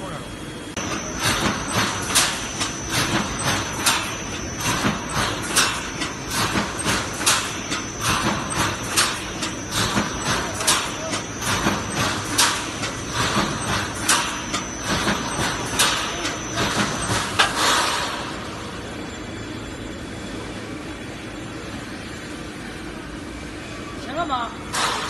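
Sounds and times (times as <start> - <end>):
welding machine clacks: 0.8 - 18.5, 24.7 - 25.0.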